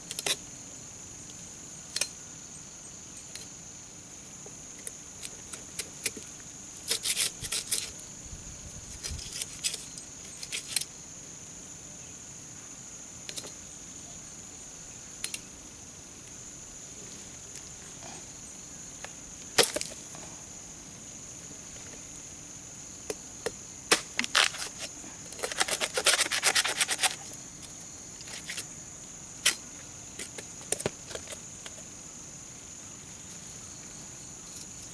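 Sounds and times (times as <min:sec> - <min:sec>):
crickets chirring: 0:00.0 - 0:34.9
knife chopping and scraping roots: 0:05.2 - 0:07.9, 0:23.1 - 0:28.6.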